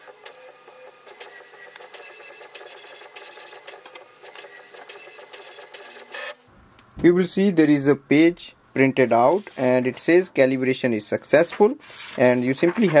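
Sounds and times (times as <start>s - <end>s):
inkjet printer mechanism running: 0.0s - 6.4s
sharp clicks of paper feeding: 11.9s - 13.0s.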